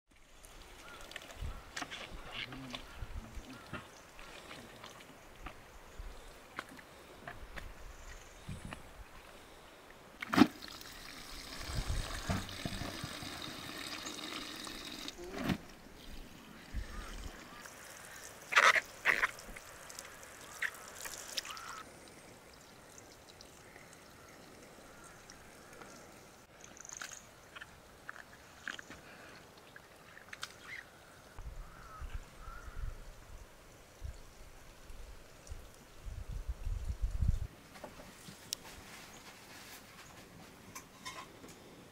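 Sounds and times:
water splashing into bucket: 10.2s - 16.2s.

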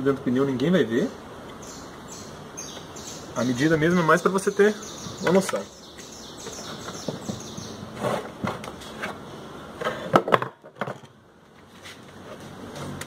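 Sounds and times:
wooden slat knocking and scraping: 6.8s - 9.2s.

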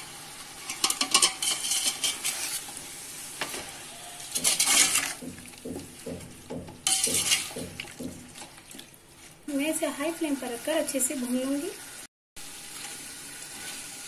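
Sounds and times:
food sizzling in hot oil: 0.0s - 6.0s, 9.5s - 14.0s
steel spoon scraping a pot: 0.4s - 2.8s, 4.2s - 5.2s, 6.8s - 7.6s.

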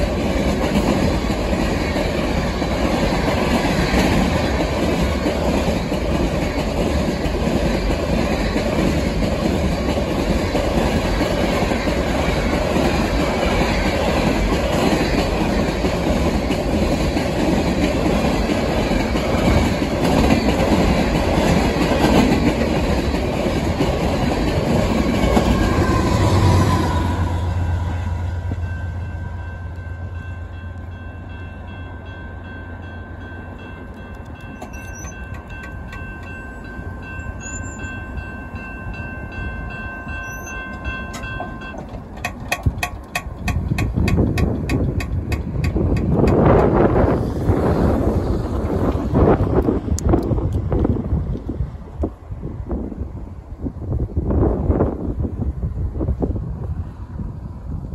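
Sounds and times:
train wheels clattering over rail joints: 0.0s - 27.0s, 33.9s - 37.2s, 40.1s - 51.0s
faint high ringing tones: 28.6s - 41.8s
wind on microphone: 42.5s - 57.9s.

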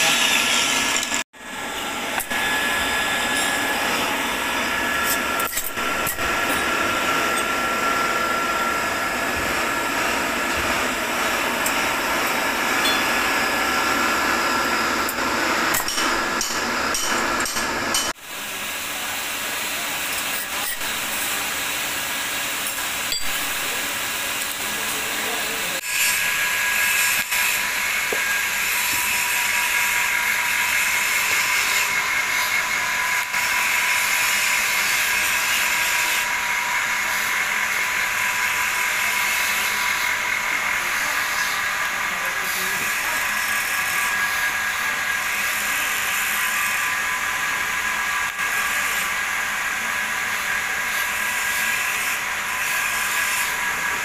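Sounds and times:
welding arc hissing: 0.0s - 1.2s.

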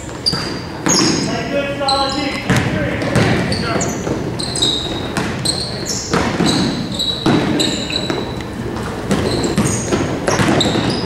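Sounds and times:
sneakers squeaking on floor: 0.0s - 11.0s
basketball bouncing on hardwood: 2.4s - 8.4s, 9.0s - 11.0s.

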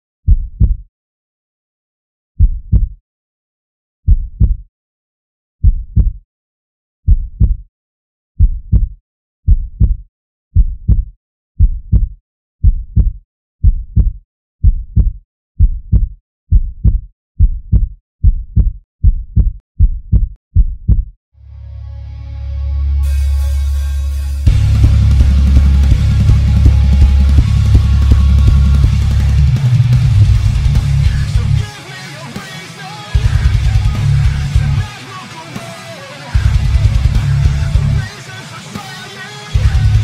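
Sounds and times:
heartbeat thumps: 0.3s - 0.8s, 2.4s - 3.0s, 4.1s - 4.6s, 5.6s - 6.2s, 7.1s - 7.6s, 8.4s - 10.0s, 10.6s - 21.1s, 24.5s - 31.6s, 33.2s - 34.6s, 36.4s - 37.9s.

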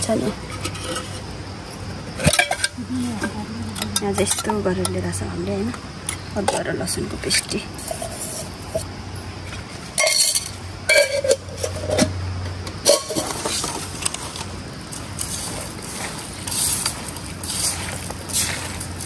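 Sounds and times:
dishes clinking and knocking: 2.2s - 4.9s, 10.0s - 12.2s, 12.8s - 14.1s
soft scraping: 13.1s - 19.0s.

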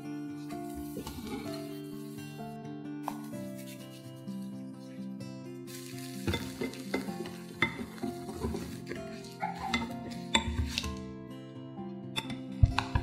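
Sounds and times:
whisk scraping glass bowl: 3.4s - 4.7s.

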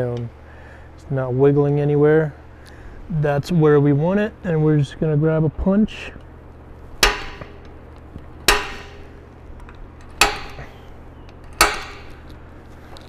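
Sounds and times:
center punch clicking on metal: 7.0s - 7.8s, 8.4s - 12.4s.

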